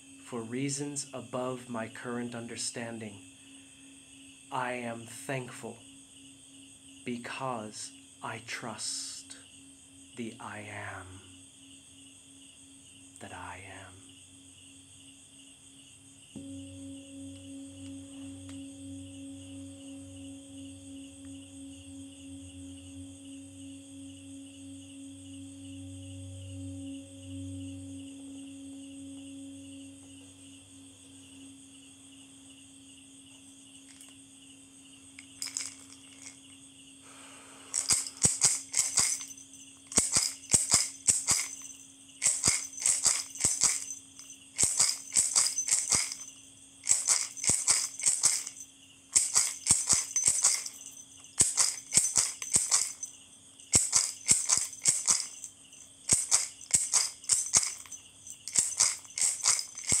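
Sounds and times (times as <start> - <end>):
singing bowl hum: 15.8 - 60.0
hand rattle shaken: 33.9 - 34.1, 35.2 - 36.5, 37.7 - 60.0.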